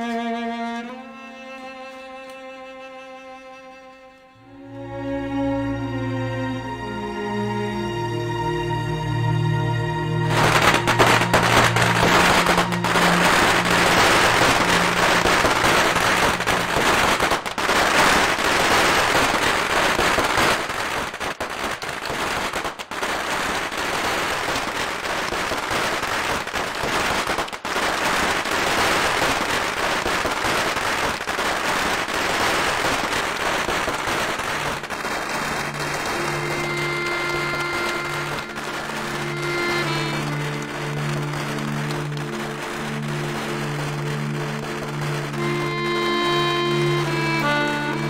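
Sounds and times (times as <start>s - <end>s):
firecrackers crackling: 10.2s - 48.0s.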